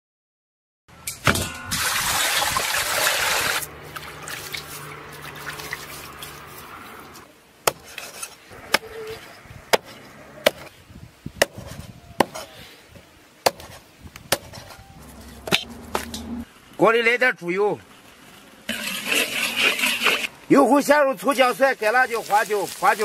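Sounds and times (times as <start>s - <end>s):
water gushing into metal basin: 1.7s - 6.8s, 18.7s - 20.3s
cleaver chopping on wooden block: 7.6s - 8.0s, 9.7s - 10.7s, 11.4s - 12.5s, 13.4s - 14.8s.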